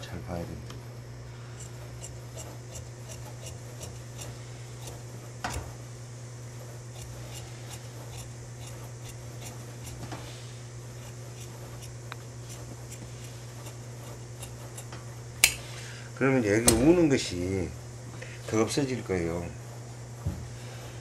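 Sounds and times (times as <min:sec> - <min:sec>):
low steady hum: 0:00.0 - 0:21.0
shears snipping fabric: 0:01.6 - 0:05.8, 0:06.5 - 0:15.7.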